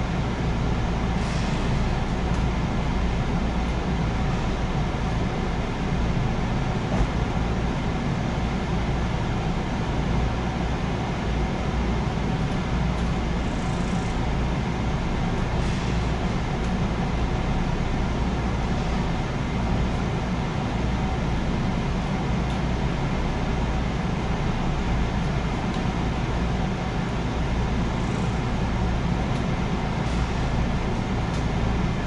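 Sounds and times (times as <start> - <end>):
train wheels rumbling on rails: 0.0 - 32.0.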